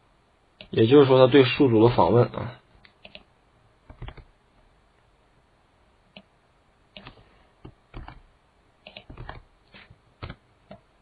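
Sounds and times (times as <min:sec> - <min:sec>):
faint steady background noise: 0:00.0 - 0:11.0
keyboard typing: 0:02.8 - 0:03.3, 0:03.9 - 0:04.3, 0:07.0 - 0:10.8.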